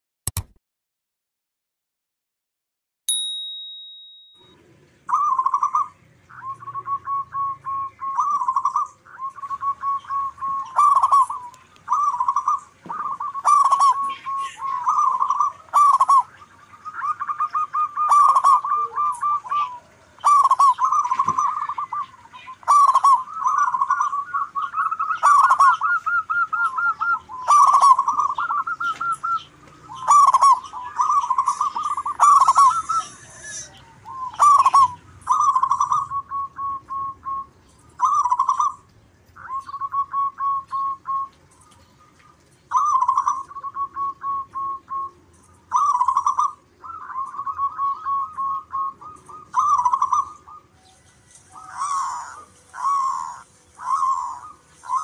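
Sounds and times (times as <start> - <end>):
high ding: 3.1 - 4.6
doves cooing: 4.8 - 55.0.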